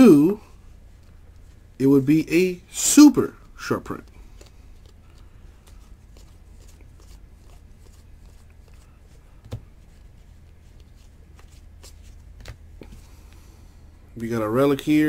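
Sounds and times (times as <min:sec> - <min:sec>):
steady low hum: 0:00.0 - 0:15.0
trading cards flicking and rustling: 0:03.3 - 0:13.4.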